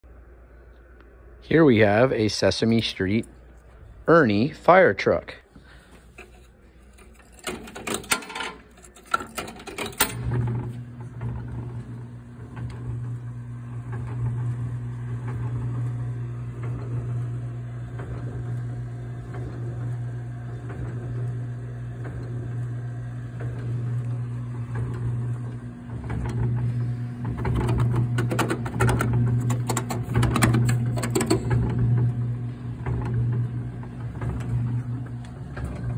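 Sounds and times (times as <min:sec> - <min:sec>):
electric motor humming: 0:10.2 - 0:35.9.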